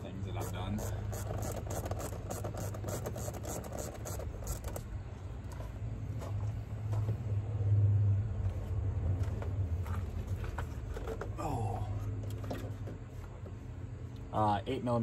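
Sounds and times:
vehicle engine droning: 4.3s - 15.0s.

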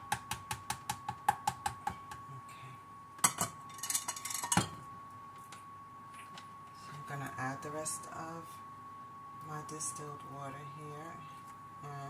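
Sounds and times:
kitchen things clattering down: 3.2s - 4.8s.

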